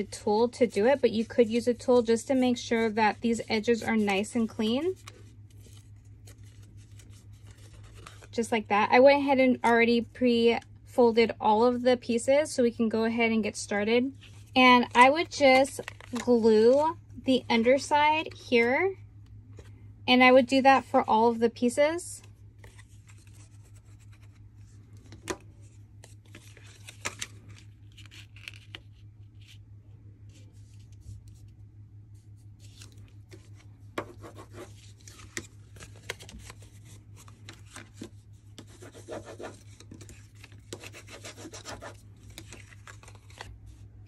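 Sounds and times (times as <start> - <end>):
steady low hum: 0.0 - 44.0
cardstock rustling: 0.6 - 8.4, 22.6 - 29.6, 32.6 - 43.8.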